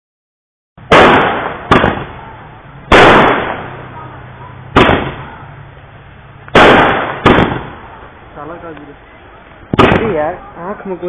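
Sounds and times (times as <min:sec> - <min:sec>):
firecracker bangs with echo: 0:00.8 - 0:05.6, 0:06.5 - 0:08.1, 0:09.7 - 0:10.4.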